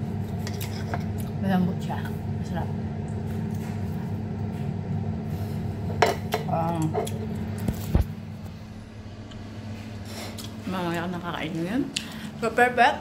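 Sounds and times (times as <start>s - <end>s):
steady low hum: 0.0s - 13.0s
cutlery scraping a ceramic plate: 0.4s - 1.2s.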